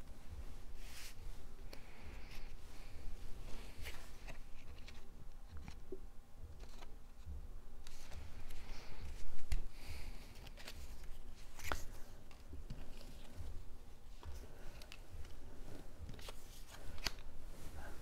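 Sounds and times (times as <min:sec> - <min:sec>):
paper rustling: 0:06.6 - 0:07.0, 0:10.2 - 0:13.5, 0:14.2 - 0:18.0.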